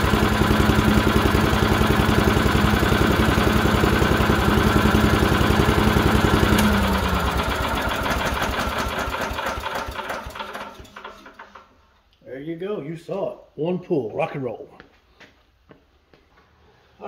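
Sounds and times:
engine winding down: 0.0s - 11.6s
small gas engine running: 0.0s - 11.7s.

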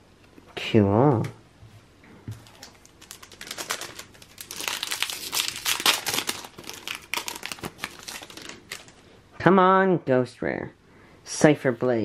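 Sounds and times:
foil wrapper crinkling: 2.3s - 9.0s
foil wrapper tearing: 2.4s - 9.0s.

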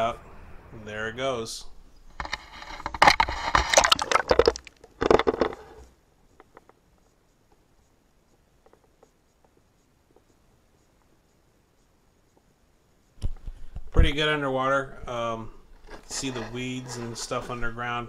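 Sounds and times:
crackling knocks: 2.1s - 5.7s
water splashing over microphone: 3.6s - 4.8s.

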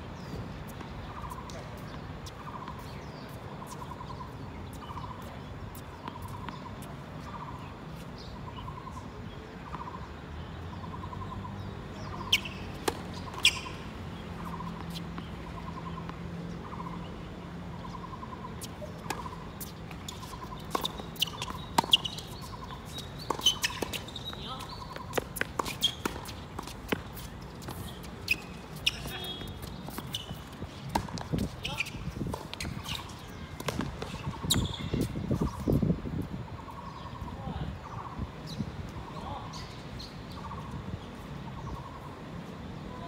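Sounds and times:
sharp knocks and squeaks: 25.1s - 26.2s.

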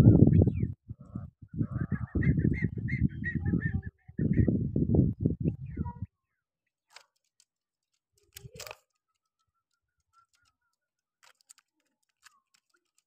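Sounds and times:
faint clicks and taps: 6.9s - 13.0s.

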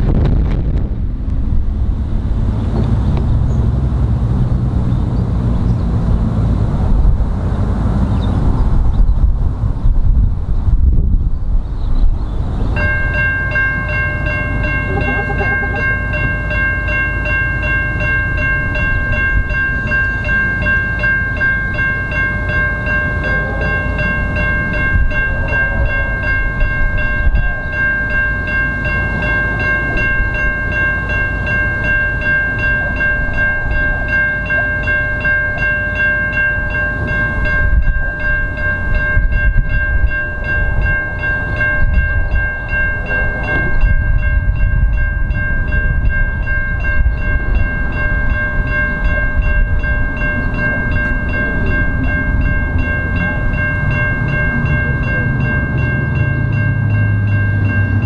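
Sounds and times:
steam locomotives rumbling: 0.0s - 58.0s
steam whistle chord: 14.8s - 15.9s.

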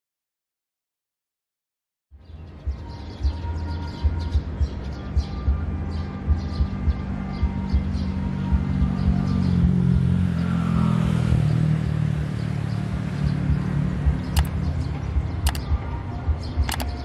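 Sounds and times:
short sharp clicks: 14.4s - 14.6s, 15.4s - 15.7s, 16.6s - 17.0s.

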